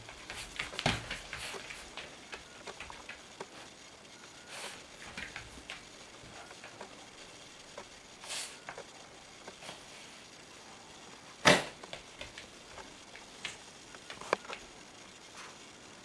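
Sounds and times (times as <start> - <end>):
dog claws on floor: 0.0 - 3.2, 5.0 - 6.8.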